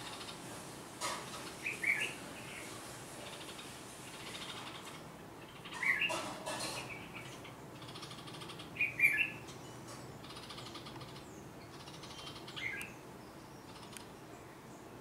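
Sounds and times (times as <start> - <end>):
bird alarm calls: 3.3 - 14.2.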